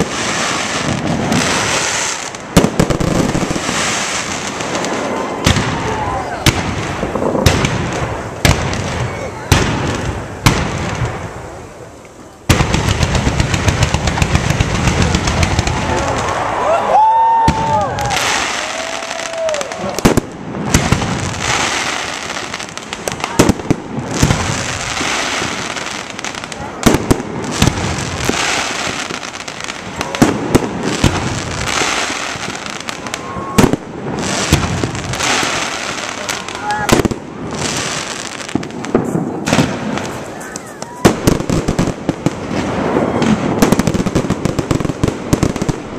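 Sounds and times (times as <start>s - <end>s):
firework bang: 0.0s - 11.5s, 17.2s - 29.3s, 29.9s - 45.9s
crackling firework barrage: 0.0s - 45.9s
firework whistles: 30.9s - 41.9s, 42.5s - 44.1s.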